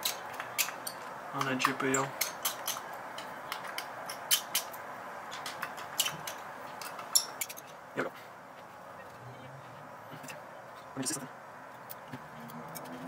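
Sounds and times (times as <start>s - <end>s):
screwdriver clicking on metal screws: 0.0s - 7.7s.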